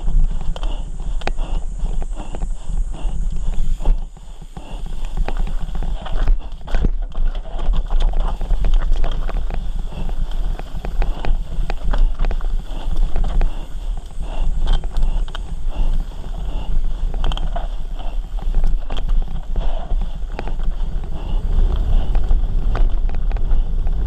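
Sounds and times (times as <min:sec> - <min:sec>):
low rumble: 0:00.0 - 0:24.0
tyres on loose dirt: 0:00.0 - 0:24.0.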